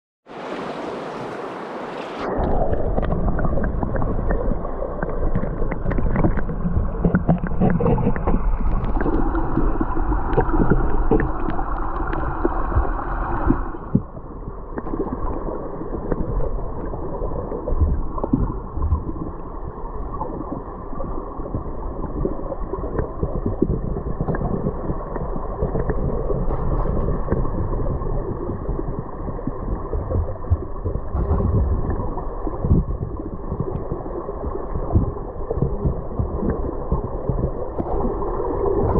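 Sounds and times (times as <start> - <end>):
river water hissing: 0.3 - 2.5
muffled underwater rushing gurgle: 0.3 - 38.9
small underwater clicks and knocks: 2.4 - 15.3, 15.9 - 16.9, 17.6 - 19.3, 21.4 - 38.9.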